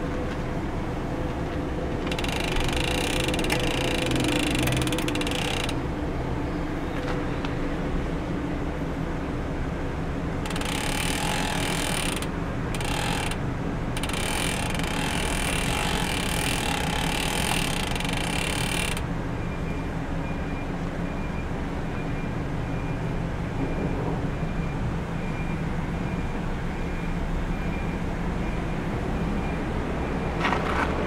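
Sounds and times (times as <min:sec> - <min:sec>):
bicycle chain running: 0:02.0 - 0:05.8, 0:10.5 - 0:13.4, 0:14.0 - 0:19.0.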